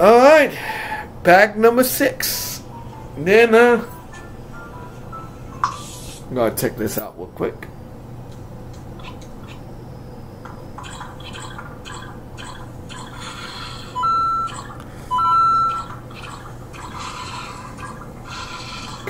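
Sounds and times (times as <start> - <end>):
electronic beeps rising in pitch: 14.0 - 16.0.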